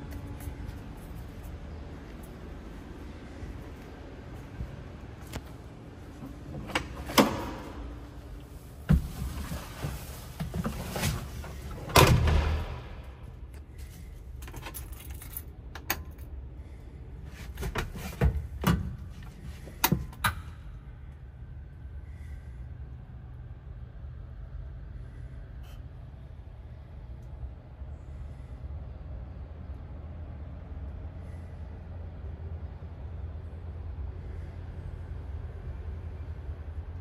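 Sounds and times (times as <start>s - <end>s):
keys jingling: 14.4s - 16.3s.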